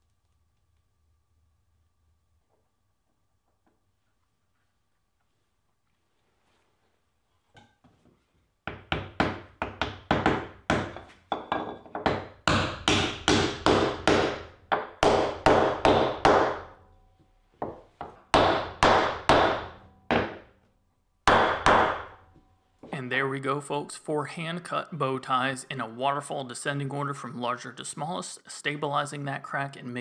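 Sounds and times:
hammer knocking on wood: 8.6s - 16.7s, 17.6s - 20.4s.

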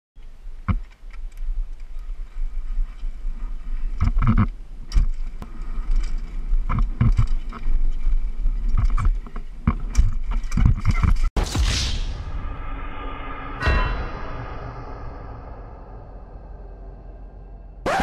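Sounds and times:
bike knocks and rattles: 3.8s - 11.3s.

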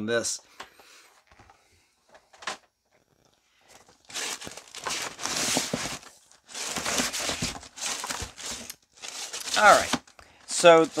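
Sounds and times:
packing material crinkling: 3.1s - 11.0s.

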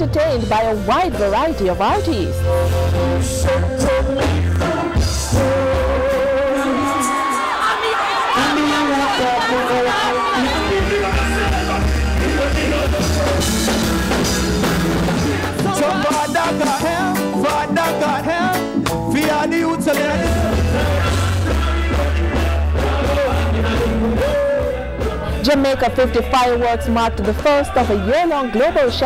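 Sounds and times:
heavy bass line: 0.0s - 7.0s, 8.4s - 29.0s
live band music: 0.0s - 7.6s, 8.2s - 29.0s
man singing into a microphone: 2.9s - 7.5s, 8.3s - 29.0s.

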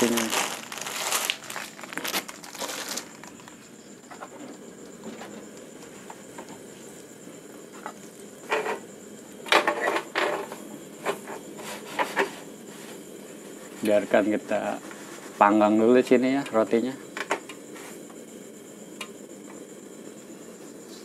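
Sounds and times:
plastic bag crinkling: 0.0s - 3.5s.

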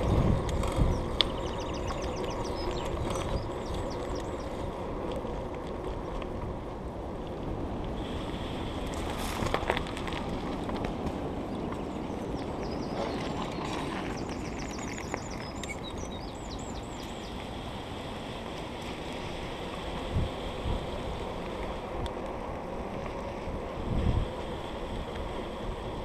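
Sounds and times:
bicycle tyres on tarmac: 0.0s - 26.0s
wind on microphone: 0.0s - 26.0s.

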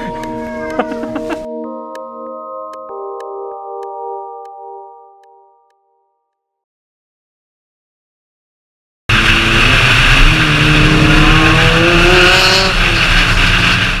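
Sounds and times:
cars accelerating: 9.1s - 14.0s.

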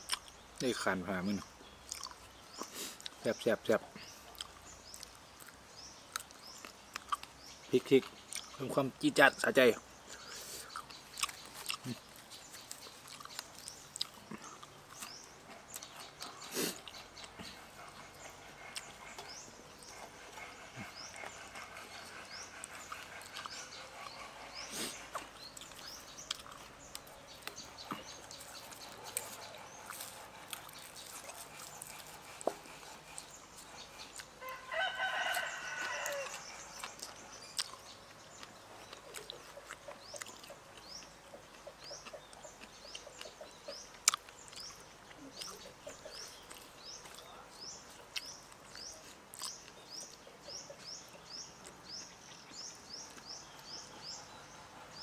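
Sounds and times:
small bird chirping: 0.0s - 55.0s
rooster crowing: 34.4s - 36.4s.

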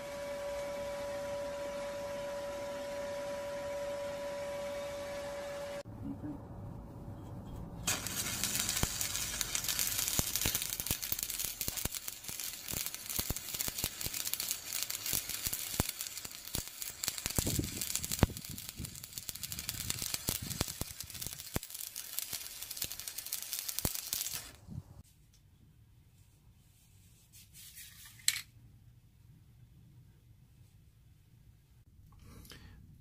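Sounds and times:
welding arc crackling hiss: 7.8s - 24.6s.

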